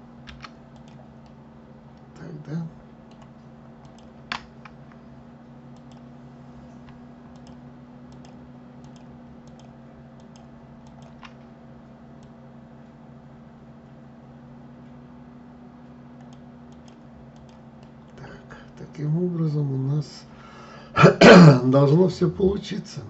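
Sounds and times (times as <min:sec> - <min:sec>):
steady low hum: 0:00.0 - 0:23.0
mouse and keyboard clicks: 0:00.3 - 0:01.4, 0:03.1 - 0:04.8, 0:06.9 - 0:11.4, 0:16.2 - 0:18.2.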